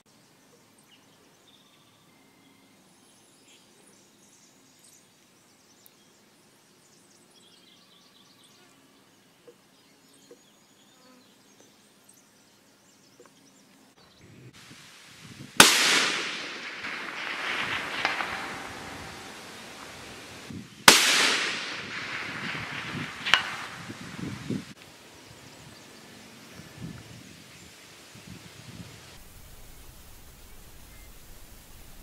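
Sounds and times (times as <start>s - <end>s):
suppressed rifle shot with echo: 15.6s - 24.7s.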